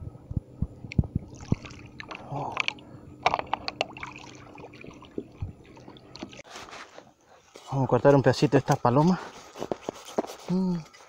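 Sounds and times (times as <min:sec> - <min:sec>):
river water splashing: 0:03.8 - 0:06.4.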